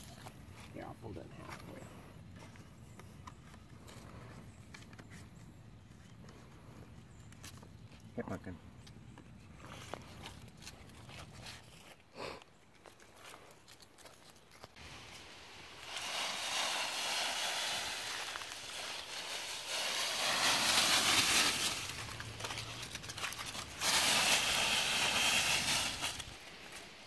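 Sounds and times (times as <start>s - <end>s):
feet crunching dry leaves: 14.7s - 27.0s.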